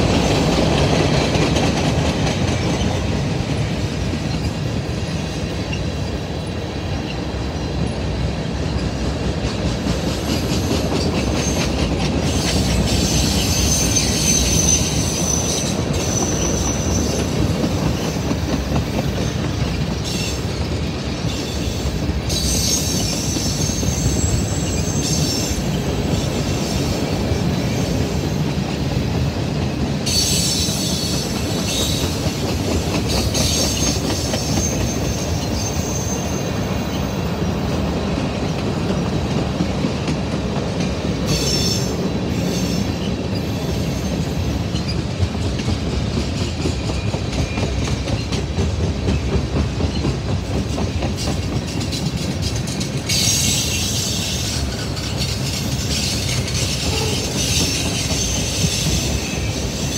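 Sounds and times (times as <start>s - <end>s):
freight train rumbling past: 0.0s - 59.9s
high wheel squeal: 10.5s - 18.2s, 21.3s - 27.0s, 30.0s - 32.2s, 33.1s - 37.3s, 41.3s - 45.0s, 51.2s - 59.9s.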